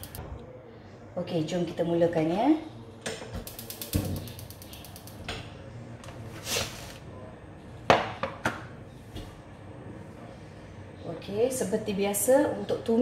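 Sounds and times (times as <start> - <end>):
rapid clicks: 0.0 - 0.2, 3.5 - 5.2.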